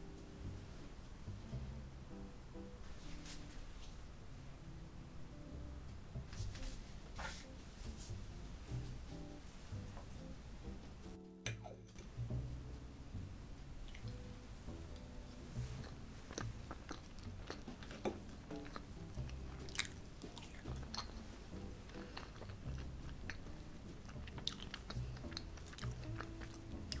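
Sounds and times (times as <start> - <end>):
soft faint music: 0.0 - 27.0
chewing: 13.8 - 14.3, 14.9 - 27.0.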